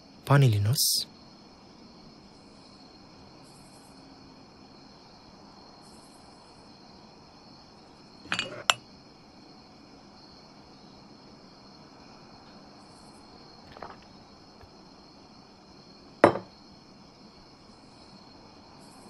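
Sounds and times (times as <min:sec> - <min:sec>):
faint steady high hiss: 0:00.0 - 0:19.0
glass knocking on table: 0:08.3 - 0:08.8, 0:16.2 - 0:16.5
sharp glass clink: 0:08.3 - 0:08.8, 0:16.2 - 0:16.5.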